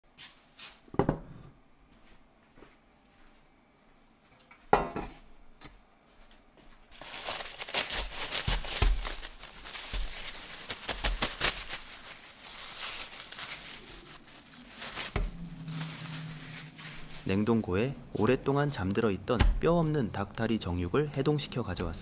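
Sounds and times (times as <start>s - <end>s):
plastic wrap crinkling: 6.9s - 17.5s.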